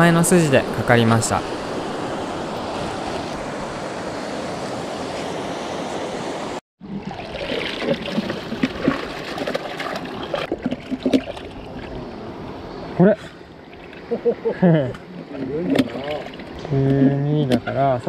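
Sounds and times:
water splashing and gurgling: 6.8 - 12.2, 15.1 - 17.2.

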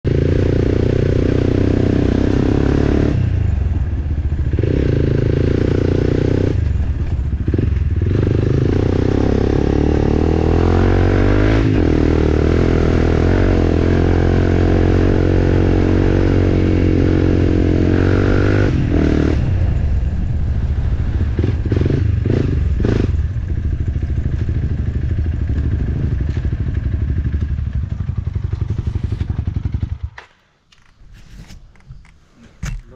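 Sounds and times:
dirt bike engine under load: 27.4 - 32.9.

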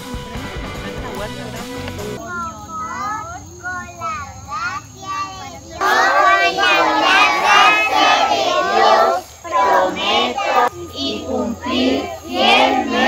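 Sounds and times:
children singing together: 5.0 - 13.0.

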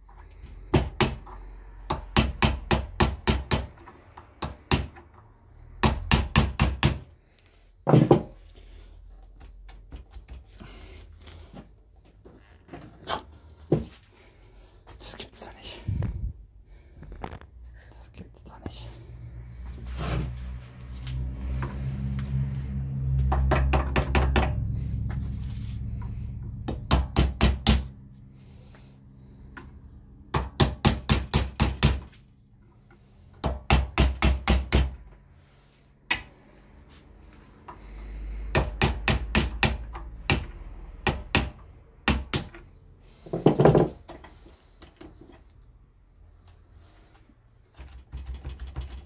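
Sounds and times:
low rumble: 15.8 - 30.4.

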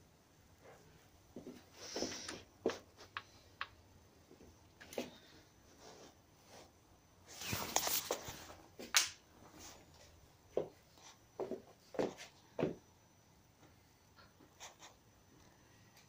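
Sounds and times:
footsteps on wooden floor: 11.4 - 12.8.

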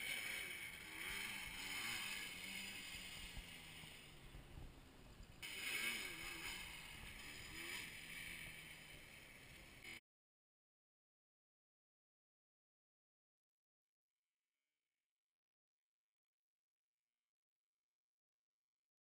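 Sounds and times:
quad bike engine revving: 0.0 - 10.0.

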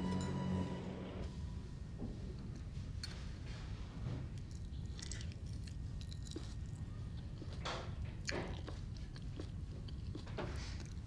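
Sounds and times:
chewing crunches: 4.4 - 11.0.

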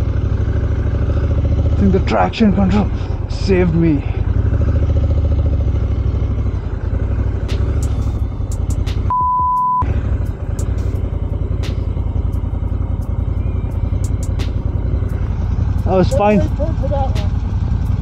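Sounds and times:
motorcycle engine running: 0.0 - 9.1, 9.8 - 18.0
high bleep tone: 9.1 - 9.9.

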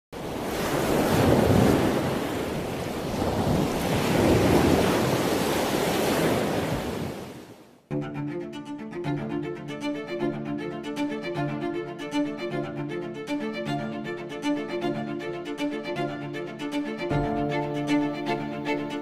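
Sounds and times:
ocean waves washing in: 0.2 - 7.8
music with bowed strings: 7.9 - 19.0.

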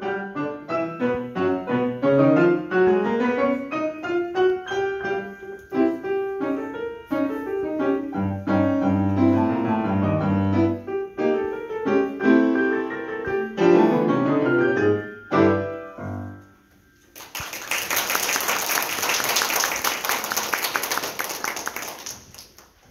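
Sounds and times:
piano duet: 0.0 - 22.9
audience applause: 17.1 - 22.9.

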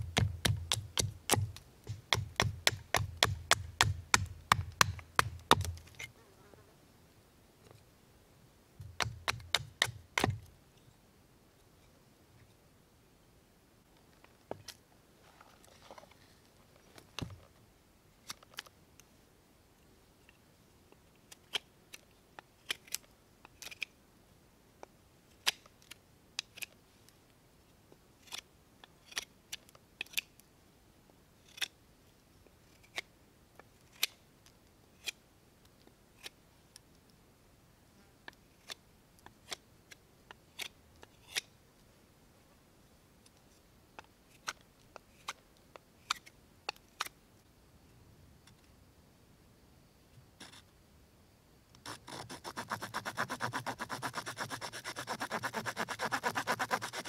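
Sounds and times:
knife carving wood: 0.0 - 6.1, 8.8 - 10.5, 22.6 - 23.9, 25.4 - 26.8, 28.2 - 28.4, 29.0 - 30.4, 31.4 - 31.8, 33.8 - 34.2, 36.2 - 36.4, 38.5 - 38.8, 39.4 - 41.5, 51.8 - 57.0.

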